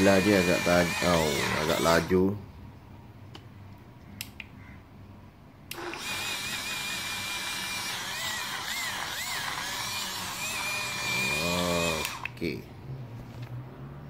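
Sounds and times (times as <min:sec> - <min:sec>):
blender motor whining: 0:00.0 - 0:02.1, 0:05.7 - 0:12.4.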